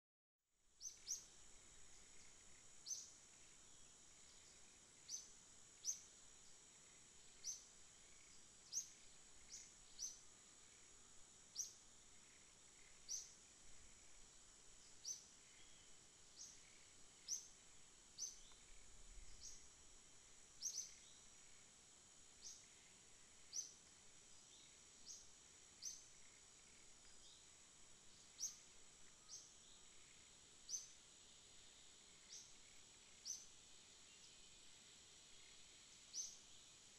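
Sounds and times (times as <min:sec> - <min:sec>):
bird chirping: 0:00.8 - 0:01.3, 0:02.0 - 0:10.9, 0:11.5 - 0:13.4, 0:14.8 - 0:17.6, 0:18.2 - 0:19.7, 0:20.6 - 0:21.3, 0:22.4 - 0:23.8, 0:24.4 - 0:27.5, 0:28.1 - 0:31.0, 0:32.2 - 0:33.5, 0:35.4 - 0:36.5
high-pitched insect drone: 0:00.8 - 0:36.7.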